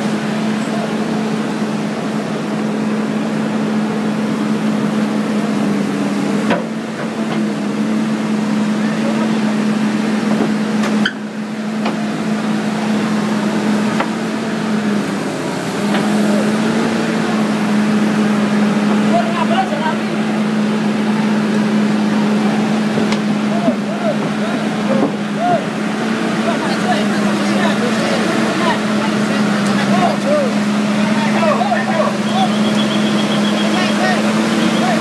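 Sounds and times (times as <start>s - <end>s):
excavator diesel engine drone: 0.0s - 35.0s.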